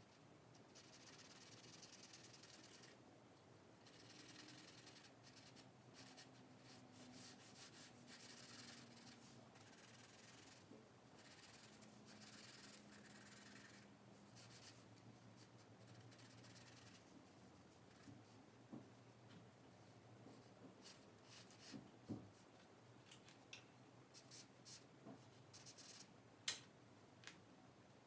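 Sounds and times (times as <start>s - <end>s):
charcoal pencil scratching paper: 0.7s - 3.0s, 3.8s - 14.8s, 15.4s - 17.1s, 25.5s - 26.1s.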